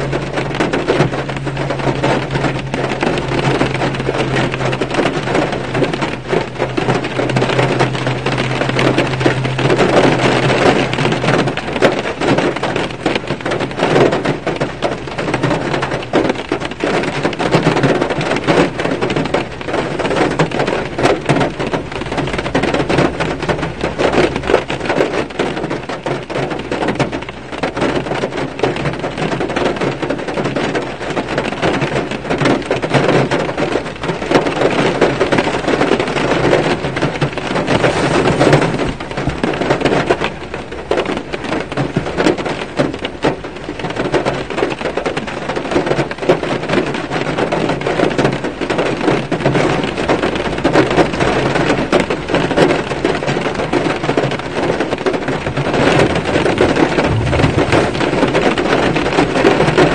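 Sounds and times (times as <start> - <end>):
rain on car roof: 0.0 - 59.9.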